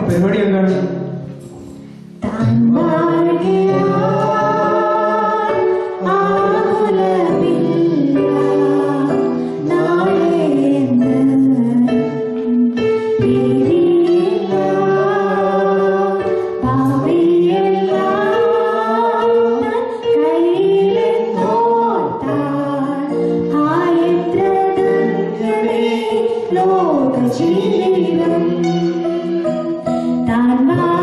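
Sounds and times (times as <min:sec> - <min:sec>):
woman singing into a microphone: 0:02.2 - 0:31.0.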